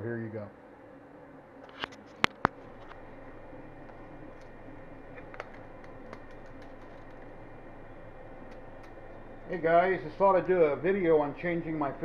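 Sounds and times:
printer fans and motors humming: 0:00.0 - 0:12.0
faint clicks: 0:03.8 - 0:07.4, 0:08.4 - 0:09.2.

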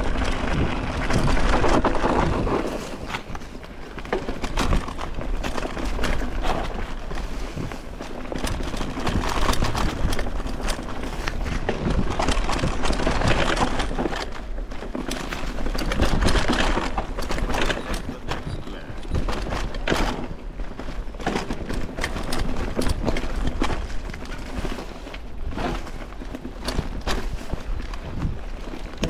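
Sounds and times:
bike clattering over bumps: 0:00.0 - 0:29.0
bike tyre noise: 0:00.0 - 0:29.0.

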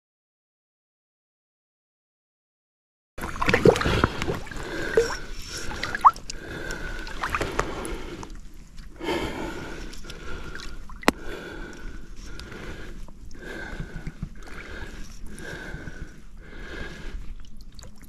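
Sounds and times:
stream water sloshing and gurgling: 0:03.2 - 0:08.9, 0:10.0 - 0:11.3, 0:17.4 - 0:18.0.

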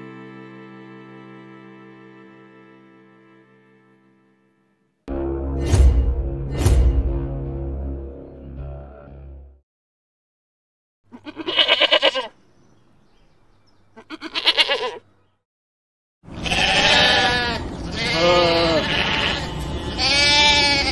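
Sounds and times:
sheep bleating: 0:11.1 - 0:12.3, 0:14.0 - 0:15.0, 0:16.3 - 0:20.9.

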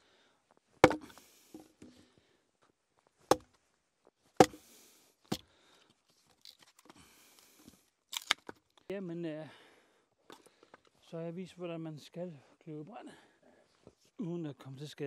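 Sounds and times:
hatchet chopping wood: 0:00.8 - 0:01.7, 0:04.4 - 0:04.6.

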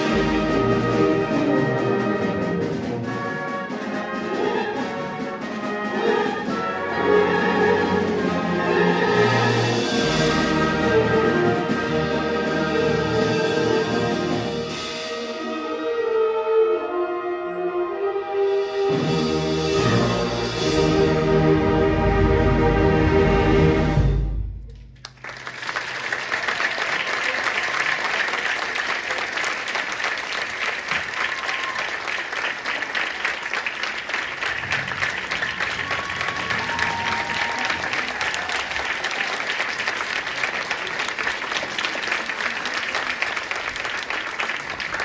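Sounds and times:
audience applauding: 0:25.0 - 0:45.0.

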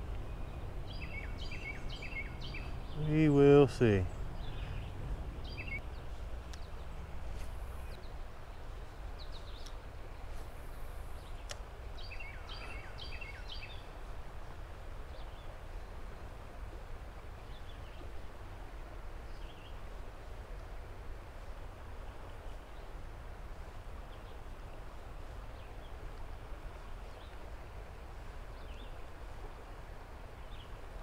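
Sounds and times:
songbirds calling: 0:00.0 - 0:14.0, 0:28.5 - 0:29.1, 0:30.3 - 0:30.9.

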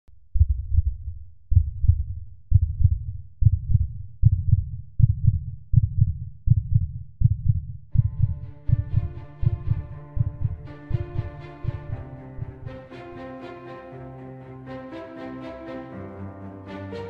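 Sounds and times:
heartbeat thumps: 0:00.3 - 0:12.8.

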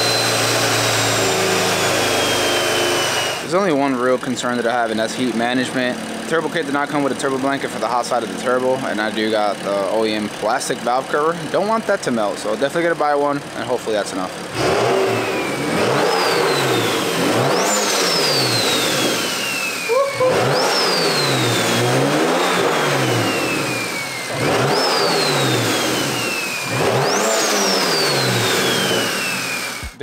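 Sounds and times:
engine revving in blips: 0:00.0 - 0:03.5, 0:14.5 - 0:30.0
turbo whistle: 0:19.8 - 0:21.4.

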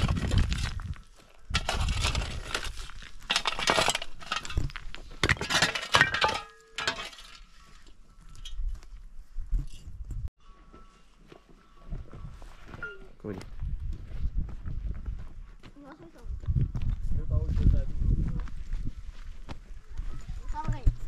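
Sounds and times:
hard objects clinking: 0:01.5 - 0:07.5.

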